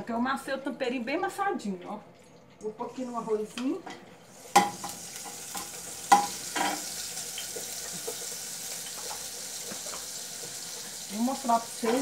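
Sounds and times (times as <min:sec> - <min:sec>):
seasoning sizzling in hot fat: 0:04.2 - 0:12.0.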